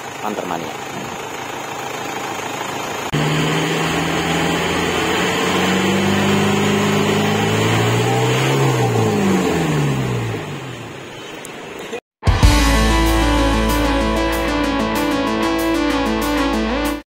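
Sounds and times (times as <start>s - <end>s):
diesel engine revving high: 3.1s - 11.0s.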